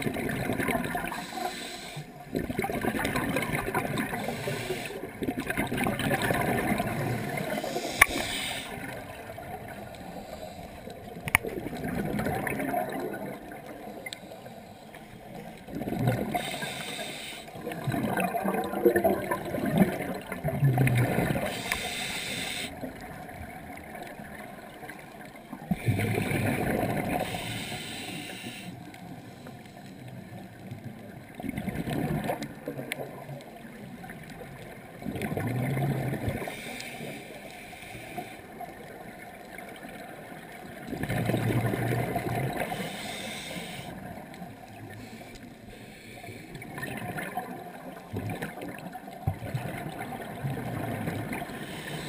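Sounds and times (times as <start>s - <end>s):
exhaled bubbles gurgling underwater: 0.0s - 52.0s
high hiss of inhaled air: 1.1s - 2.1s, 4.2s - 5.0s, 7.3s - 8.8s, 16.4s - 17.5s, 21.5s - 22.7s, 27.2s - 28.8s, 42.7s - 43.9s.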